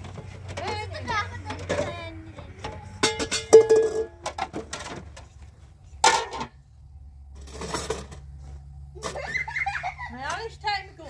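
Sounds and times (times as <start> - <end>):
pot lid clanking on metal pot: 2.6 - 4.6, 6.0 - 6.5
soft rustling scrape: 7.4 - 8.8.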